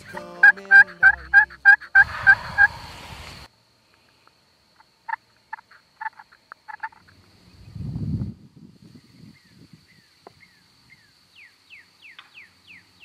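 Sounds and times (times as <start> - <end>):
background music: 0.0 - 2.0
turkey call clucks: 0.0 - 2.8, 4.8 - 7.1
turkey call yelps: 0.0 - 2.8.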